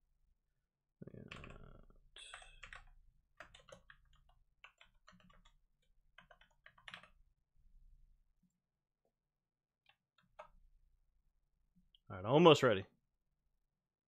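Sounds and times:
typing on computer keyboard: 1.3 - 7.2, 9.9 - 10.6.

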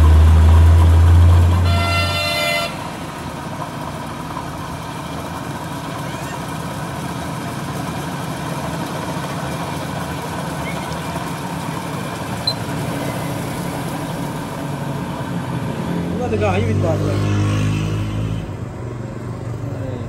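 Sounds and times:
metal lathe running: 0.0 - 15.4
vehicle horn toot: 1.6 - 3.0.

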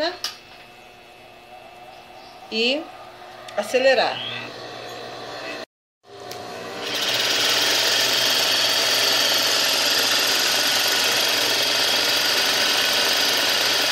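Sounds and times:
sewing machine running: 6.4 - 13.9.

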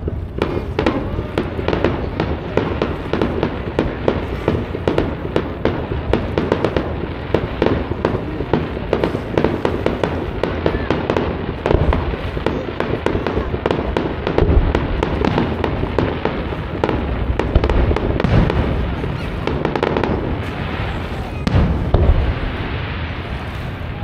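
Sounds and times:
fireworks bursts and crackling pops: 0.0 - 24.0.

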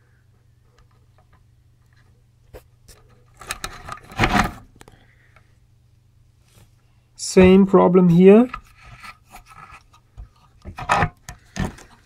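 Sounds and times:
faint steady hum: 0.0 - 12.0
rustling: 6.4 - 12.0.

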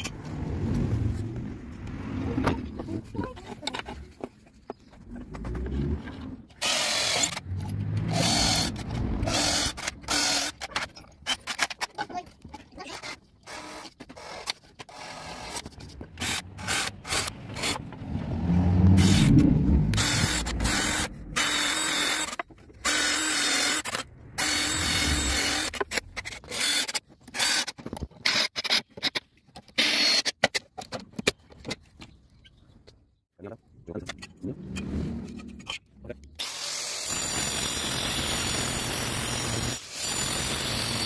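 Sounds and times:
cordless drill boring into wood: 6.6 - 7.4, 8.0 - 10.6, 13.5 - 15.6, 20.0 - 25.9, 36.4 - 41.0.

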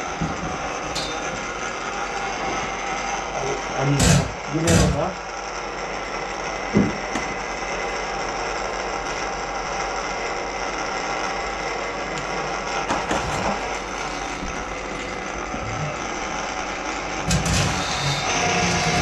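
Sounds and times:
drain-cleaning machine motor running: 0.0 - 19.0.

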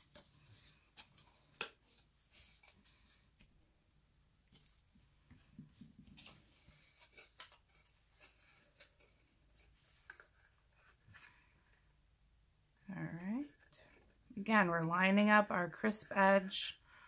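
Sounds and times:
cardstock rustling: 0.0 - 3.5, 4.5 - 11.4.

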